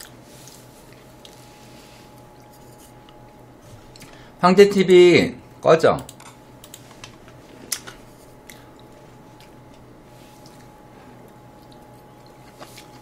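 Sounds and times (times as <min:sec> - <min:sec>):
soft mouth eating sounds: 0:08.2 - 0:09.5, 0:10.3 - 0:13.0.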